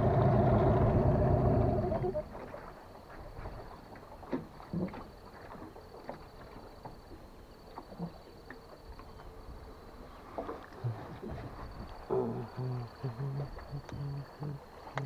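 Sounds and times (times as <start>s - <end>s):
water lapping around boat: 0.0s - 15.0s
high pulsing insect trill: 10.8s - 15.0s.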